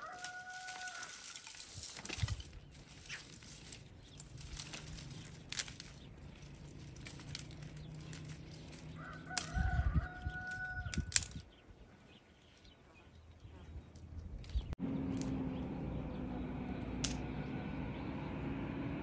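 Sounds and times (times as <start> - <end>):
rooster crowing: 0.0 - 1.4, 8.9 - 11.1
dry twigs snapping and rustling: 0.0 - 12.7, 13.9 - 15.4, 17.0 - 17.2.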